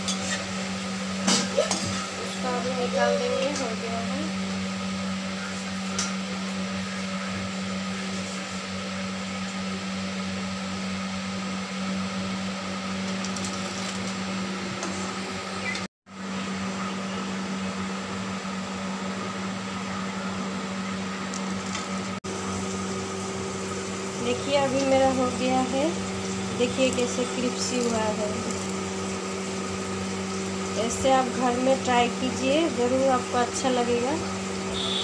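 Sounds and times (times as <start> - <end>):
deep-frying sizzle in oil: 0.0 - 8.8, 21.0 - 35.0
low motor hum: 0.0 - 35.0.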